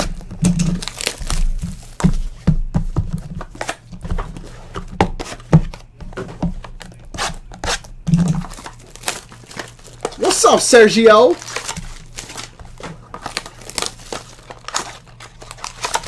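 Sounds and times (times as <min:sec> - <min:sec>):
packaging tearing and rustling: 0:00.0 - 0:02.0, 0:06.9 - 0:16.0.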